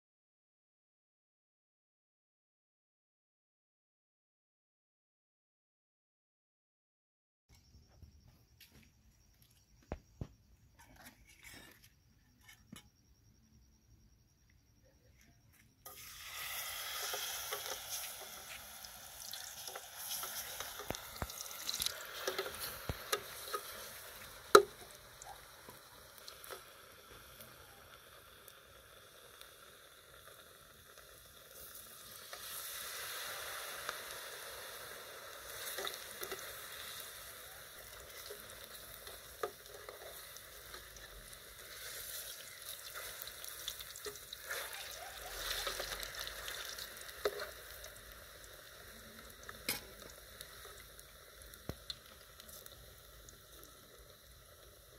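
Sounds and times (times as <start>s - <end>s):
rice balls sizzling in hot oil: 15.8s - 54.9s.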